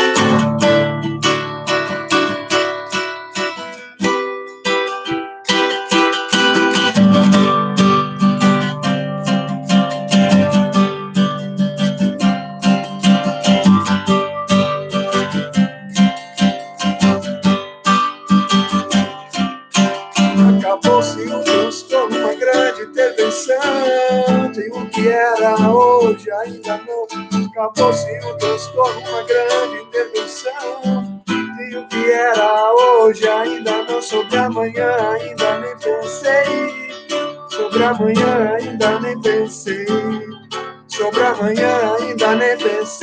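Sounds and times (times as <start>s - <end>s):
acoustic guitar strummed and picked: 0.0s - 43.0s
man singing: 20.3s - 43.0s.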